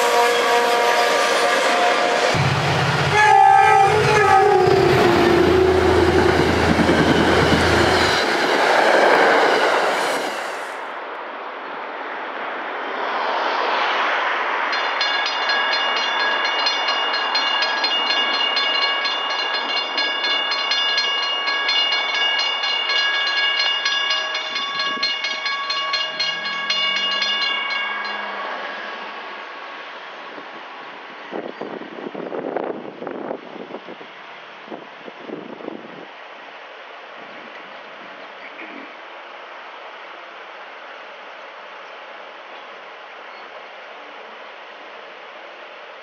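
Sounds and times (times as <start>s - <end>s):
train horn: 0.0s - 8.0s
railroad crossing bells ringing: 0.0s - 8.7s, 14.7s - 30.4s
train rushing past: 0.0s - 11.2s, 12.8s - 34.8s.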